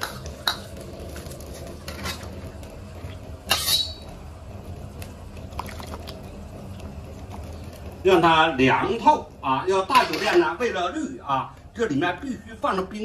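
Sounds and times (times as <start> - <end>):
steady low hum: 0.0 - 13.0
ladle squeaking on glass bowl: 3.5 - 4.2.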